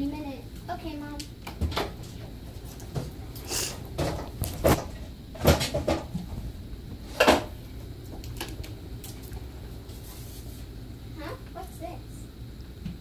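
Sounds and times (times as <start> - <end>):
cupboard doors and drawers banging: 4.0 - 6.3.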